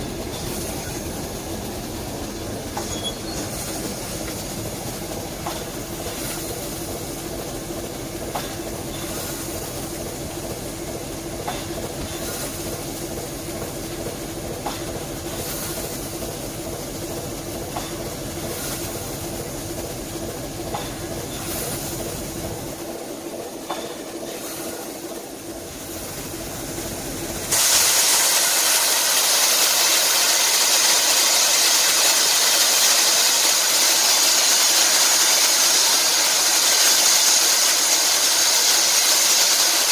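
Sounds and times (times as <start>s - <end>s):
locomotive hum: 0.0s - 39.9s
steam venting hiss: 0.0s - 39.9s.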